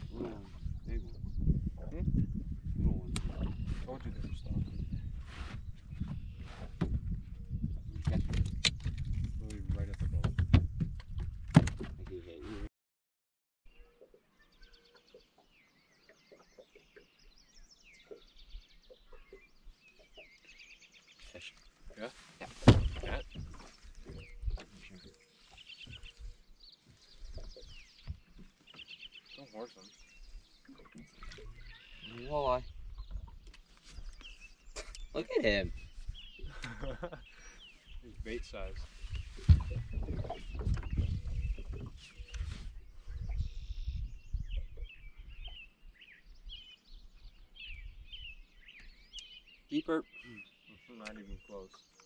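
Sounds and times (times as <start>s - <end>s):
songbirds trilling: 13.7s - 52.0s
loud thump: 22.6s - 23.2s.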